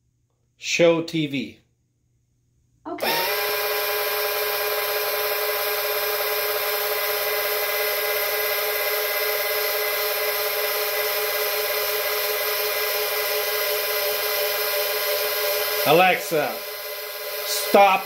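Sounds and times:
electric actuator motors whining: 3.0s - 18.0s.

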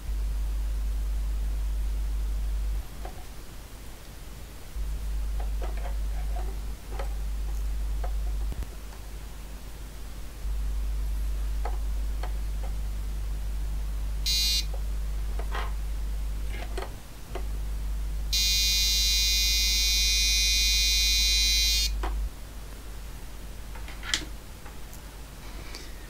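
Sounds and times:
low hum: 0.0s - 23.9s
electronic buzzer tone: 14.2s - 14.8s, 18.3s - 22.0s.

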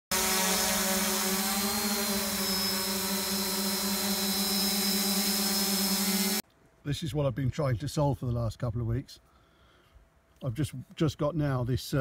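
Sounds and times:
drone propellers humming: 0.1s - 6.4s.

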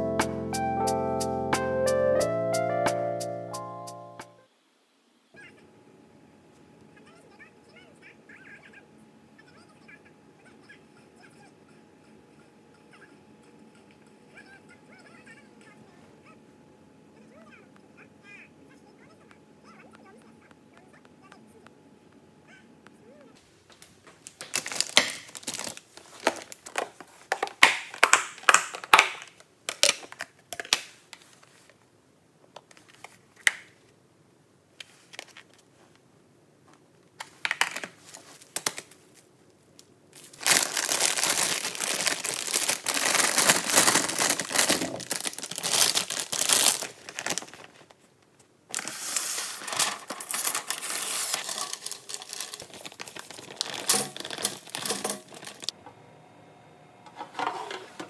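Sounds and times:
parchment paper crinkling: 23.8s - 30.2s, 37.2s - 55.7s
wrap and paper crinkling and tearing: 24.2s - 31.8s, 37.2s - 39.3s, 40.2s - 48.0s, 48.7s - 55.7s.

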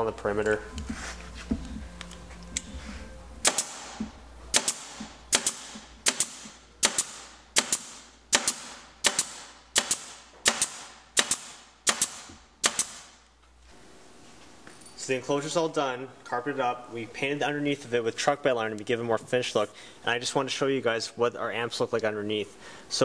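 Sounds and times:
staple gun firing into wood: 3.4s - 13.1s.

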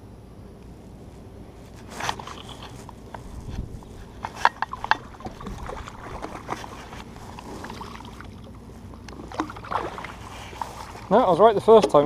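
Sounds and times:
fish splashing: 3.8s - 11.2s
water knocking against hull: 4.1s - 8.4s.

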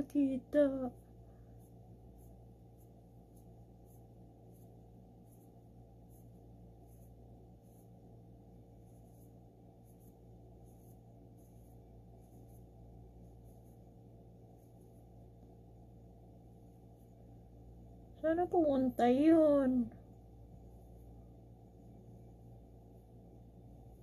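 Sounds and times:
pencil scratching strokes: 0.0s - 17.5s
low steady hum: 0.0s - 24.0s.

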